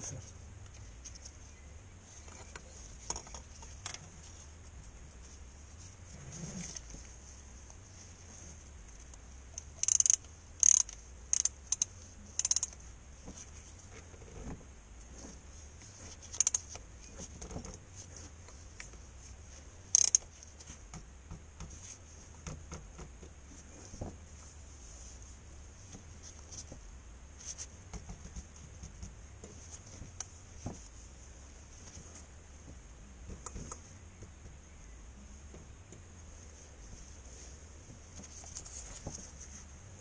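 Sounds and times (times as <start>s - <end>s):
hand ratchet clicking: 9.6s - 12.8s, 16.4s - 16.6s, 19.9s - 20.2s.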